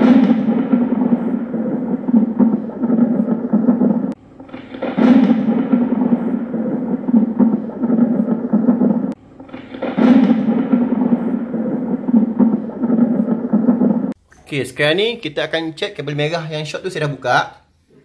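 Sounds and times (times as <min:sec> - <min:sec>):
long thunder-like rumble: 0:00.0 - 0:14.2
loud crack: 0:00.0 - 0:14.2.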